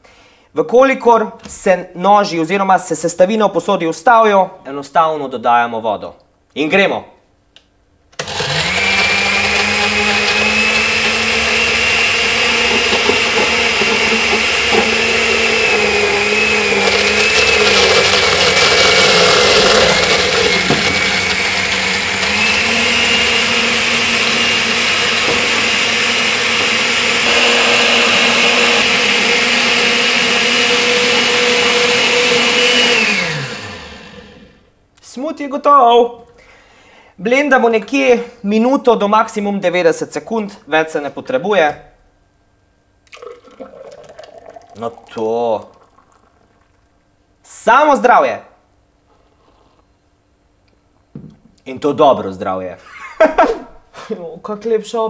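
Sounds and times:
blender motor whining: 0:08.2 - 0:34.6.

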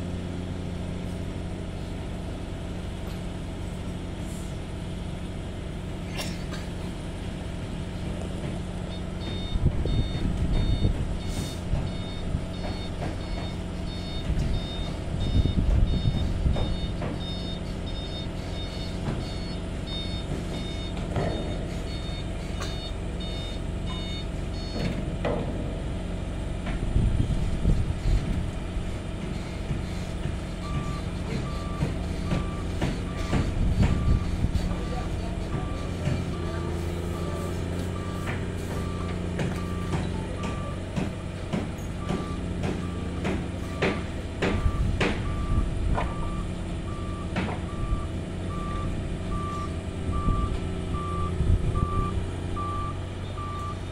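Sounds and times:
excavator diesel engine: 0:00.0 - 0:53.9
backup alarm beeping: 0:08.9 - 0:24.9, 0:30.6 - 0:40.8, 0:42.0 - 0:53.8.

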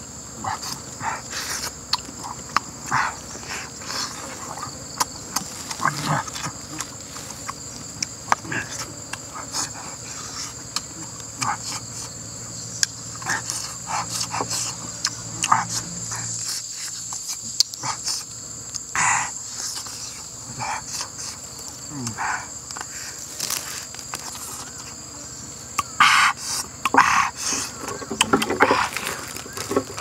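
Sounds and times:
insects droning: 0:00.0 - 0:30.0
person chewing meat: 0:00.6 - 0:09.3.

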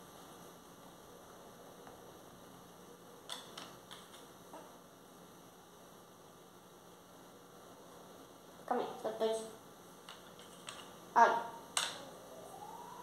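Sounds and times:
faint room hum: 0:00.0 - 0:13.0
plastic pots clicking and tapping: 0:03.3 - 0:04.3, 0:10.1 - 0:10.9.

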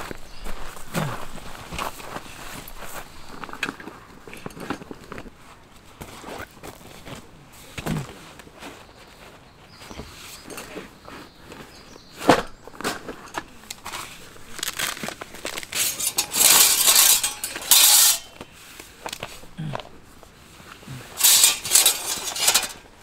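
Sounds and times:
rustling and sliding: 0:00.0 - 0:23.0
metal plates clinking and scraping: 0:10.2 - 0:10.9, 0:12.9 - 0:18.5, 0:21.0 - 0:23.0.

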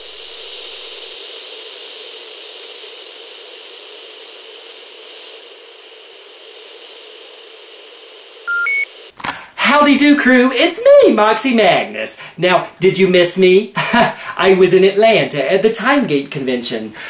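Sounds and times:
television static hiss: 0:00.0 - 0:17.0
short electronic beeps: 0:08.5 - 0:08.9.

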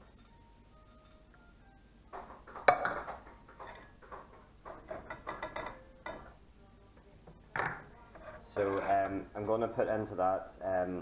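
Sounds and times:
metal sieve knocking on saucepan: 0:02.2 - 0:06.3.

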